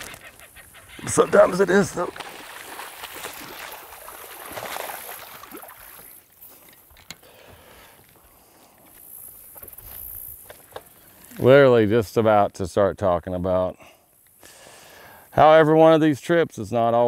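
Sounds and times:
fish splashing and thrashing in water: 0:00.0 - 0:06.4.

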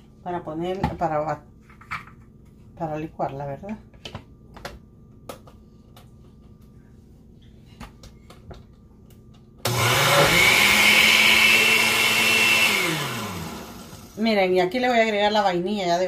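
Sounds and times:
blender running: 0:09.7 - 0:14.2.

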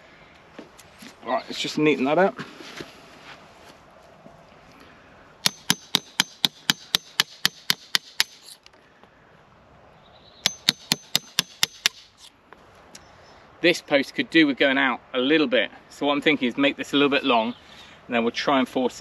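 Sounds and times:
hammer striking a chisel: 0:05.4 - 0:08.4, 0:10.4 - 0:12.1.

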